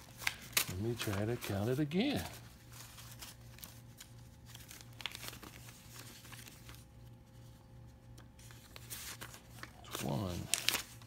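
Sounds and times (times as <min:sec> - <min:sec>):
banknotes rustling and flicking: 0:00.0 - 0:11.0.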